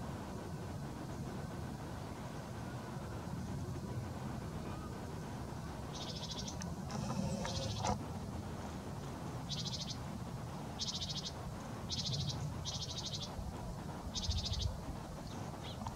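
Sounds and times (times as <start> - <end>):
steady low rumble: 0.0 - 15.9.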